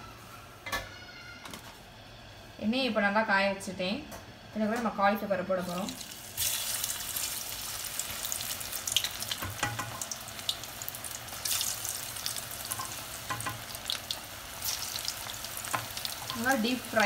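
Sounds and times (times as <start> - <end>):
deep-frying oil sizzling: 5.6 - 17.0.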